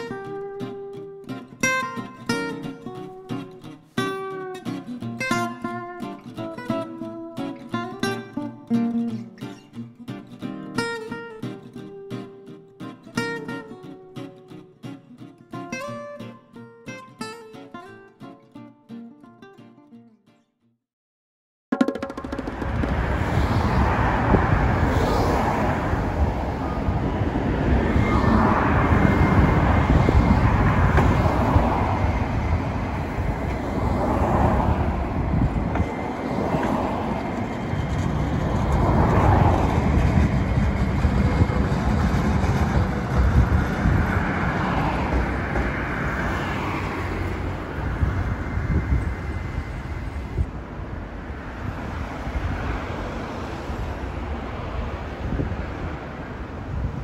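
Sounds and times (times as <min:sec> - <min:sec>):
cars passing: 0:22.2 - 0:57.0
steady road rumble: 0:22.3 - 0:57.0.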